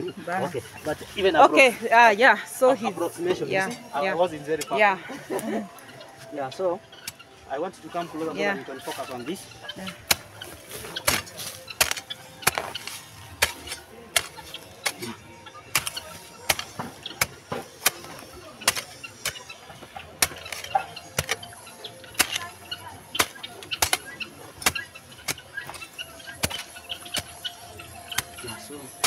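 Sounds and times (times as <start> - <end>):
hoe chopping into soil: 10.0 - 19.4, 20.2 - 21.5, 22.1 - 22.5, 23.2 - 27.4.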